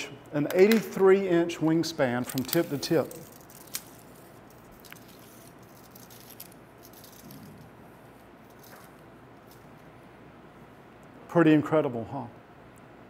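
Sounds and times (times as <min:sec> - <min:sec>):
metal tape measure rattling: 0:02.2 - 0:07.7, 0:08.4 - 0:09.7.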